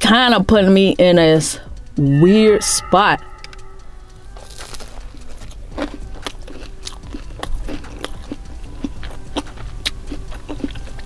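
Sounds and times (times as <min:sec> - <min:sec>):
chewing crispy food crunches: 0:04.6 - 0:11.0.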